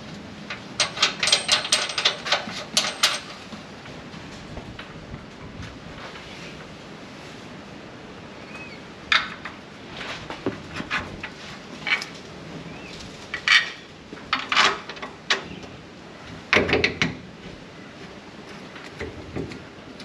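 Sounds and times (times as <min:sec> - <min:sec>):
metallic clanks of tools and parts: 0:00.5 - 0:03.5, 0:13.3 - 0:15.6.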